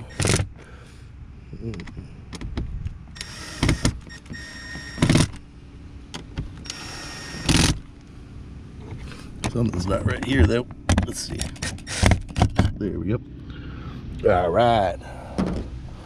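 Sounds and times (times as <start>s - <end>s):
drill driver whirring: 3.2s - 5.4s, 6.6s - 7.8s, 11.6s - 12.4s.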